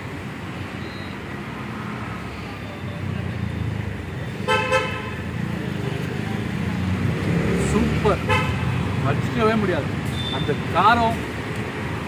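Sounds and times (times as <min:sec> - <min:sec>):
road traffic: 0:00.0 - 0:12.0
vehicle horn tooting: 0:04.5 - 0:05.1, 0:08.3 - 0:08.6.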